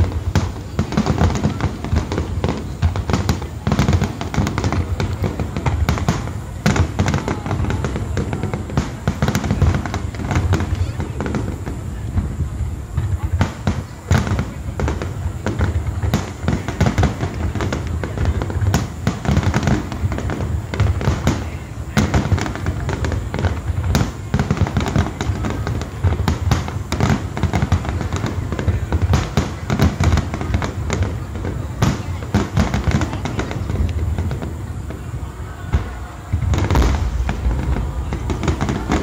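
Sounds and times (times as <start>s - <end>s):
fireworks bursting: 0.0s - 39.0s
low rumble: 36.6s - 39.0s.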